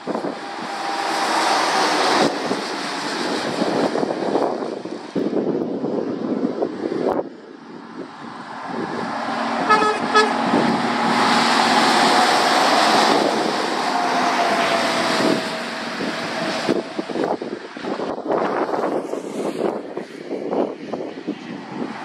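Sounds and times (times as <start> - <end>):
wind buffeting microphone: 0.0 - 22.0
short horn toots: 9.6 - 10.4.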